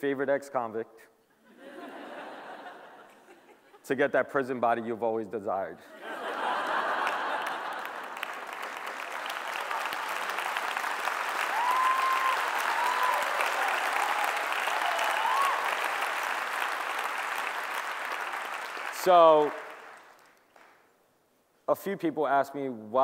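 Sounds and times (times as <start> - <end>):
audience applauding: 6.2 - 20.8.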